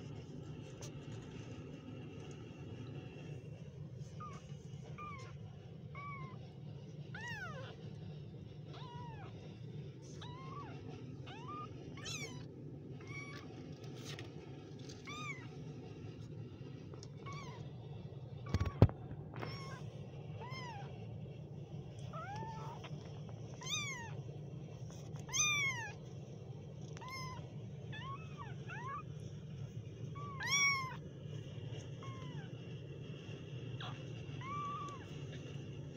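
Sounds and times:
steady low hum: 0.0s - 35.9s
kittens mewing: 25.2s - 26.0s, 27.0s - 29.1s, 30.2s - 31.0s, 33.7s - 35.5s.

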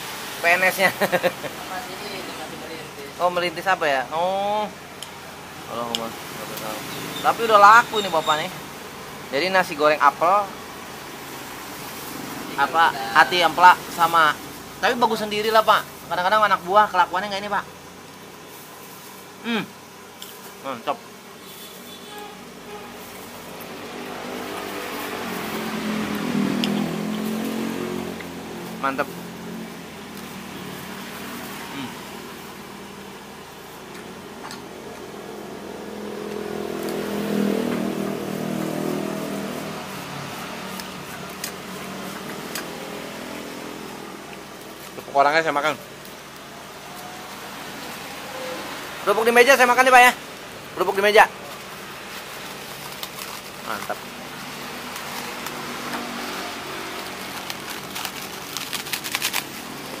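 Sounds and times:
traffic noise: 0.0s - 60.0s
vehicle engine passing: 23.0s - 32.2s, 34.7s - 44.6s, 46.7s - 60.0s
sharp crackling clicks: 52.2s - 54.1s, 54.8s - 56.1s, 56.9s - 59.9s.

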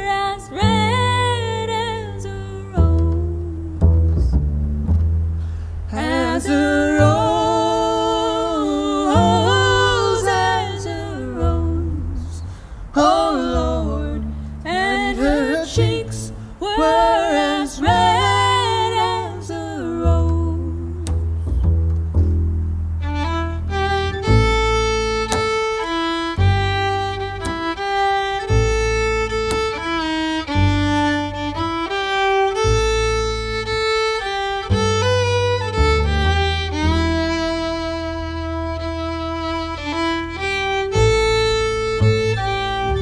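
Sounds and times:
woman singing folk song: 0.0s - 4.2s, 5.9s - 21.2s
fiddle: 0.0s - 22.4s, 23.0s - 43.0s
low upright bass notes: 0.0s - 43.0s.

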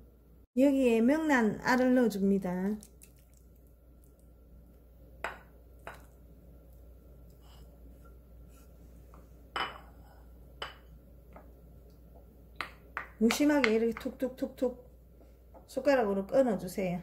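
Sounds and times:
wooden spoon knocking on ceramic: 12.6s - 14.2s.

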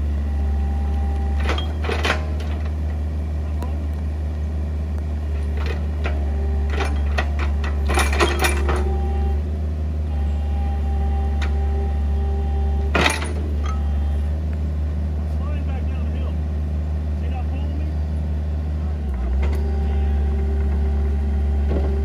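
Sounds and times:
excavator engine drone: 0.0s - 22.0s
bucket and tracks clanking: 1.4s - 3.0s, 5.4s - 9.0s, 12.9s - 13.9s.

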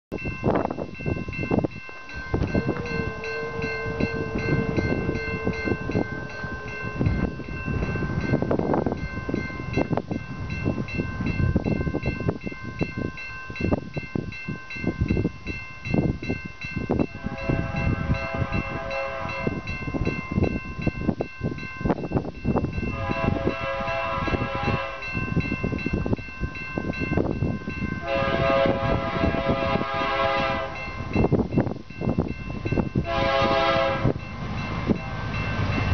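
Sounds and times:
gusty wind buffeting: 0.1s - 35.9s
locomotive air horn blasts: 2.4s - 7.4s, 17.1s - 19.7s, 22.9s - 25.2s, 28.0s - 30.9s, 33.0s - 34.2s.

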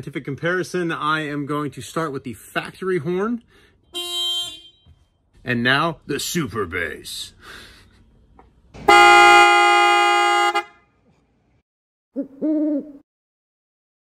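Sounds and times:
deep vehicle horn blast: 8.8s - 10.9s
recorded owl hoot: 12.2s - 13.0s.

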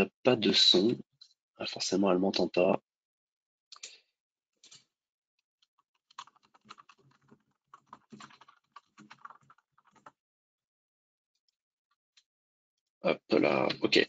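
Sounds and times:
faint keyboard typing: 5.8s - 10.2s.

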